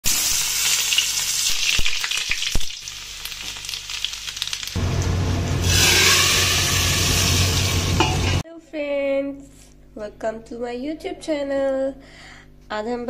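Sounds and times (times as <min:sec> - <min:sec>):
hot oil sizzling: 0:00.0 - 0:08.4
oil crackles: 0:00.6 - 0:04.8.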